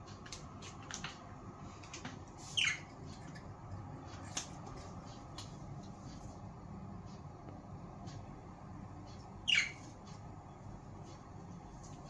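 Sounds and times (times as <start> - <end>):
budgerigars chirping: 2.5 - 2.9, 9.4 - 9.9.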